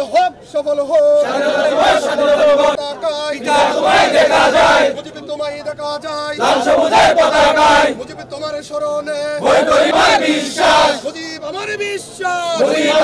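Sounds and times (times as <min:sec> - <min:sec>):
crowd of men chanting: 0:01.2 - 0:05.1, 0:06.4 - 0:08.0, 0:09.4 - 0:11.1, 0:12.6 - 0:13.0.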